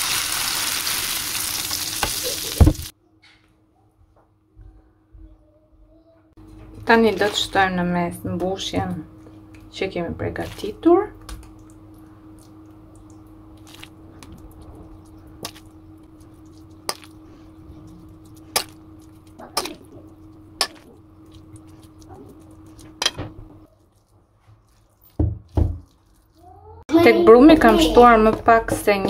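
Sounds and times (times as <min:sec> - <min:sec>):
steady low hum: 0:04.0 - 0:23.8.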